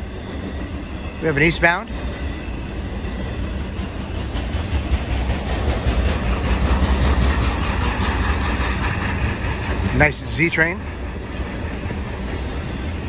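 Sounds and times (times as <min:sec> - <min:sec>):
freight train rumble: 0:00.0 - 0:13.0.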